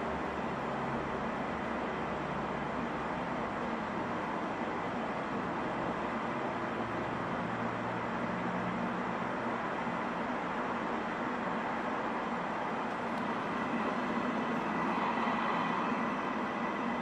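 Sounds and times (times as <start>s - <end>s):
static hiss: 12.2s - 17.0s.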